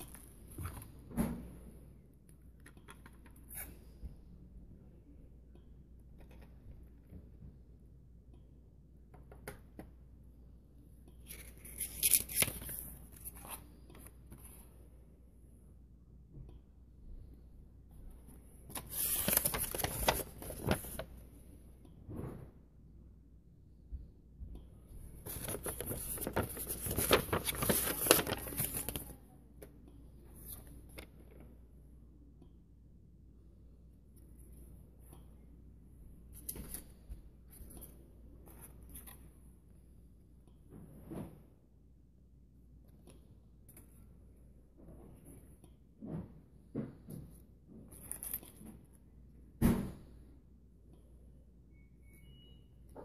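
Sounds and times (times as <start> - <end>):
paper rustling and crinkling: 11.3 - 14.6, 18.7 - 21.1, 25.2 - 29.2, 47.9 - 48.8.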